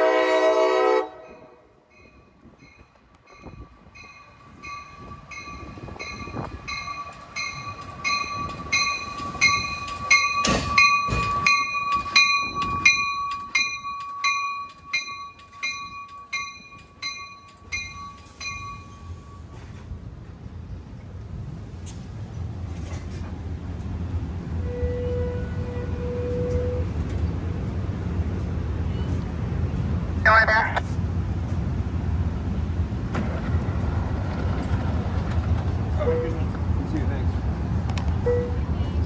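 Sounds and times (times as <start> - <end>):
train cars rumbling: 0.0 - 39.0
train bell ringing: 1.2 - 19.7.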